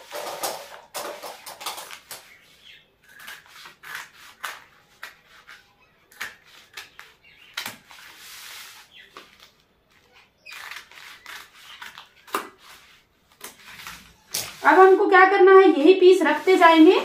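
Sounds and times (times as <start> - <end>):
scissors cutting cloth: 3.1 - 7.0
fabric rustling: 7.9 - 17.0.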